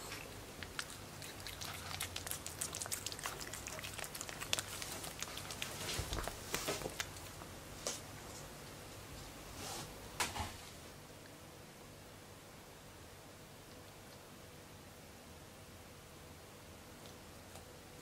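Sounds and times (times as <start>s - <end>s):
puppy licking wetly: 0.2s - 7.3s.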